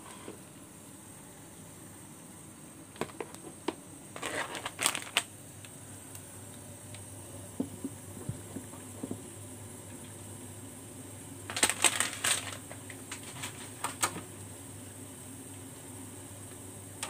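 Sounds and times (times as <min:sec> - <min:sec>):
boiling water bubbling: 0:05.3 - 0:17.0.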